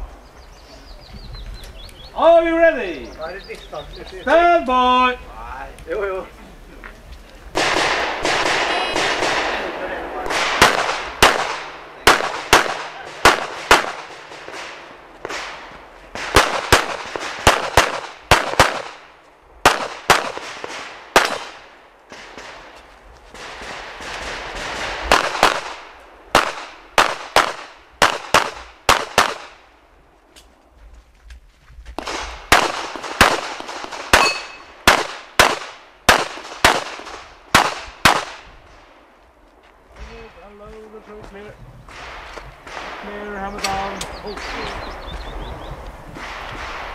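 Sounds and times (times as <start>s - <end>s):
rapid pistol shots with echo: 7.6s - 22.7s, 23.4s - 29.6s, 32.0s - 38.5s.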